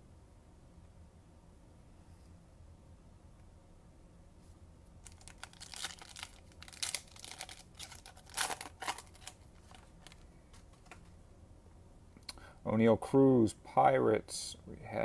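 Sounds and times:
wrapper tearing and crinkling: 5.0s - 10.2s.

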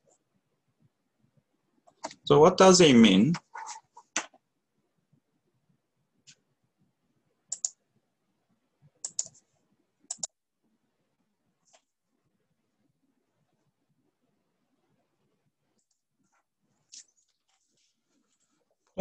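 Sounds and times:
computer mouse clicking: 7.5s - 7.8s, 9.0s - 9.4s, 10.1s - 10.4s.

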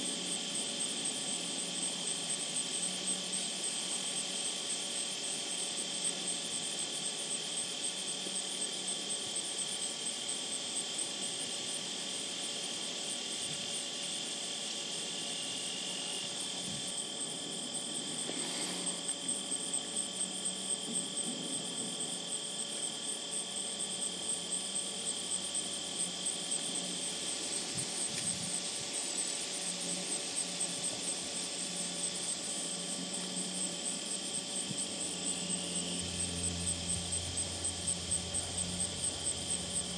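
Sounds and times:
insects trilling and buzzing: 0.0s - 39.9s
background hiss: 15.4s - 22.0s.

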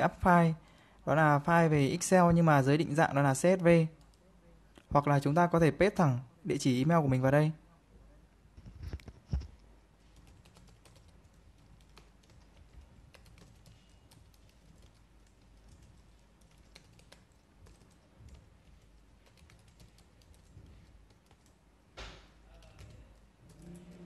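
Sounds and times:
faint keyboard typing: 3.6s - 4.9s, 8.6s - 21.7s, 22.4s - 24.0s.

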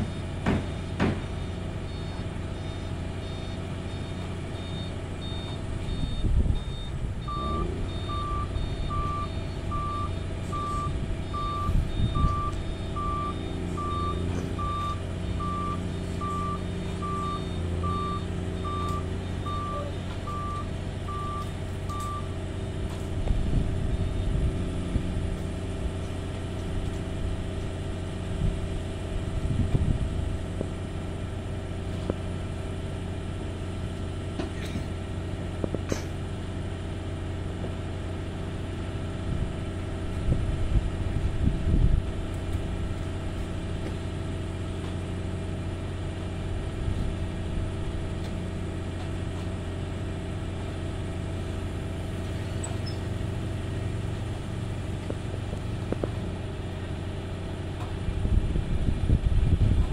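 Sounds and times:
truck reversing beeper: 0.0s - 58.3s
excavator diesel engine rumbling: 0.0s - 59.9s.

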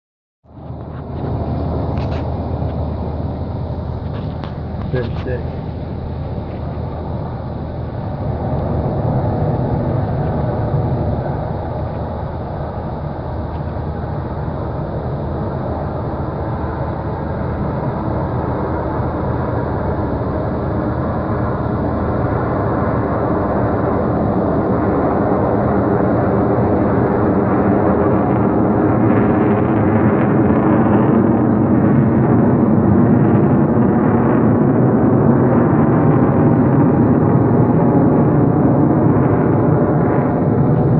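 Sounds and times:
vehicle engine humming: 0.5s - 15.4s.

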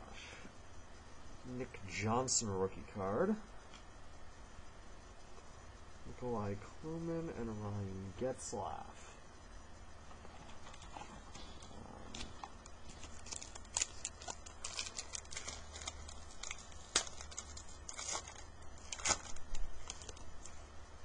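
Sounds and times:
cards rustling and flicking: 10.3s - 20.6s.

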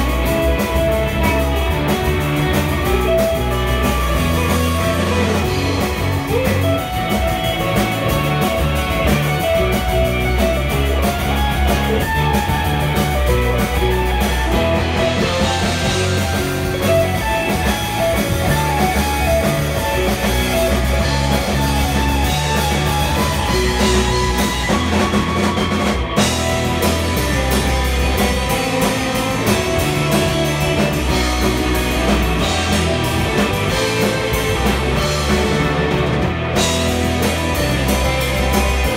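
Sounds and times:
drum kit: 0.0s - 38.9s
electric bass: 0.0s - 38.9s
electric lead guitar: 0.0s - 38.9s
rhythm guitar: 0.0s - 38.9s.

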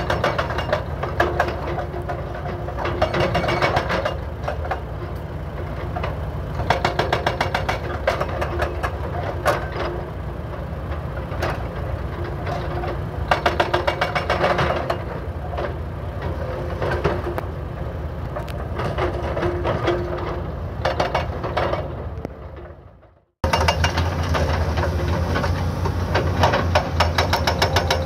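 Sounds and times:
diesel engines running: 0.0s - 28.0s
hydraulic breaker hammering asphalt: 6.6s - 9.7s, 13.3s - 15.1s, 23.4s - 28.0s.

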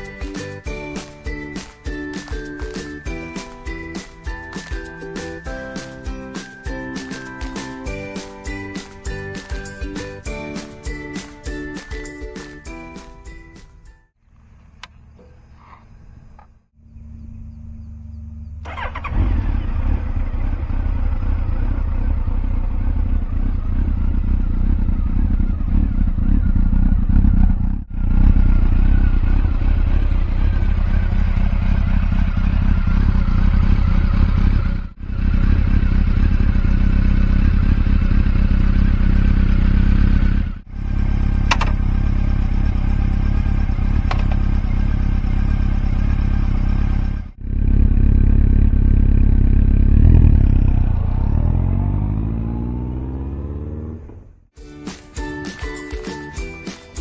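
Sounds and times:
motorcycle engine starting and idling: 14.3s - 54.6s.

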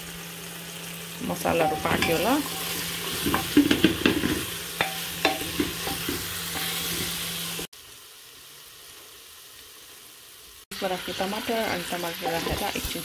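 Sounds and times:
frying sizzle: 0.0s - 13.0s
spatula scraping and clinking pan: 1.5s - 7.4s, 12.2s - 13.0s.

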